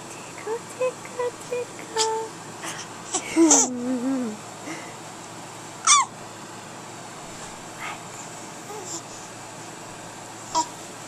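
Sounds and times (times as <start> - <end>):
baby babbling and cooing: 3.1 - 4.4, 8.7 - 9.1, 10.5 - 10.7
baby squealing: 5.8 - 6.1.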